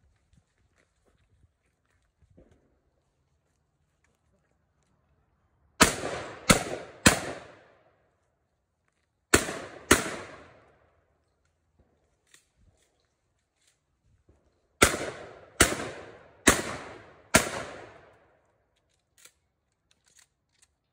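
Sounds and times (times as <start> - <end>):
shotgun shots: 5.8 - 7.8, 9.3 - 10.7, 14.8 - 18.2.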